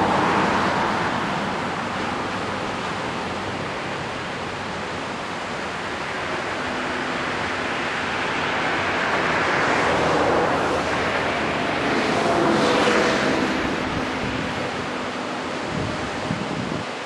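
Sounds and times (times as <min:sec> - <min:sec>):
ocean surf washing onto beach: 0:00.0 - 0:17.0
wave breaking: 0:06.0 - 0:16.9.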